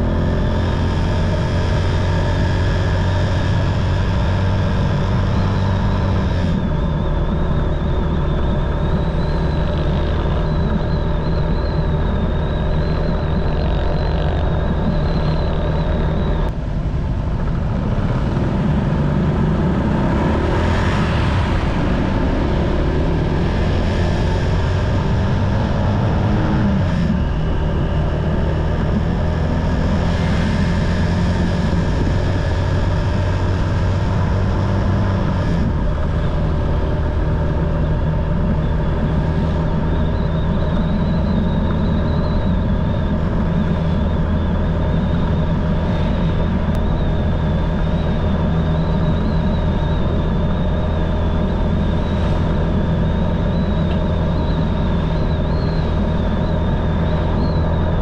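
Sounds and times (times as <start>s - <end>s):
motorcycle engine running: 0.0s - 58.0s
road and wind noise: 0.0s - 58.0s
wavering high whine: 0.0s - 58.0s.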